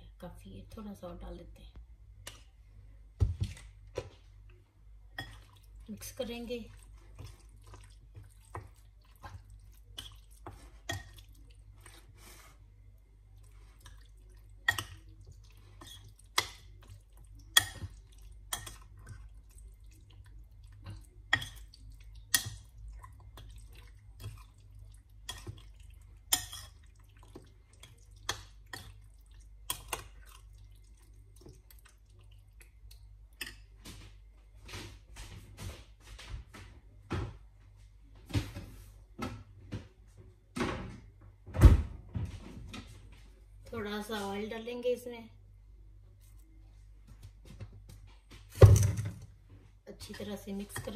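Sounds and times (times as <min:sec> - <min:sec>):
low steady hum: 0:00.0 - 0:50.9.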